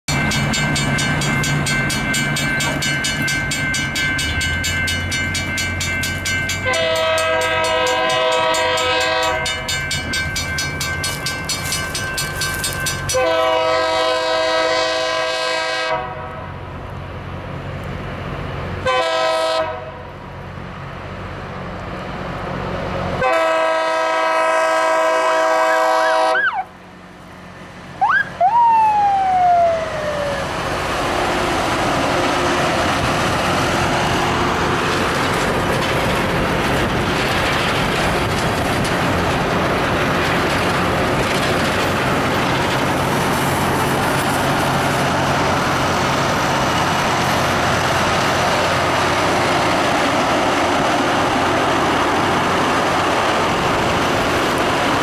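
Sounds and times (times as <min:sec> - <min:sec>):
crossing bells ringing: 0:00.1 - 0:14.2
train horn blasts: 0:06.6 - 0:09.6, 0:13.1 - 0:16.6, 0:18.8 - 0:20.1, 0:23.2 - 0:26.7
rising and falling whistle: 0:28.0 - 0:30.5.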